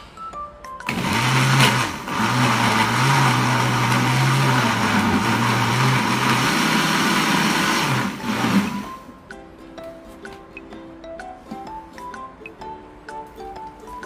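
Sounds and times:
kitchen blender running: 0.9 - 9.0.

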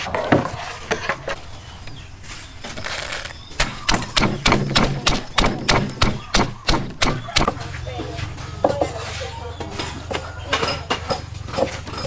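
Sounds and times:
pestle pounding in wooden mortar: 3.5 - 7.6.

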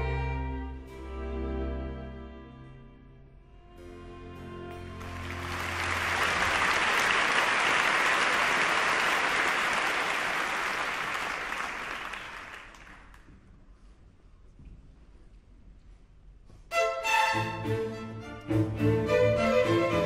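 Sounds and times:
audience applauding: 5.0 - 13.3.

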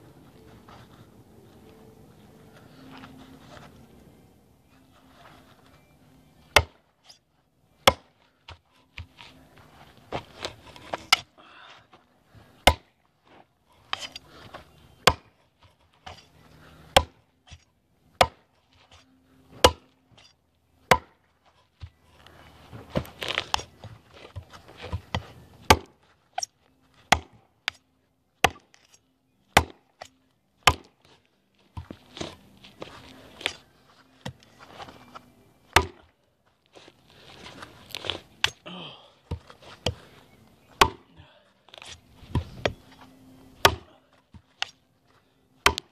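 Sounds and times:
knife chopping into log: 12.6 - 12.9, 15.0 - 15.3, 19.6 - 19.8, 20.9 - 21.1, 24.3 - 25.9, 29.6 - 29.8, 30.7 - 30.9, 35.8 - 36.0, 40.8 - 41.1, 43.6 - 43.9, 45.6 - 45.9.

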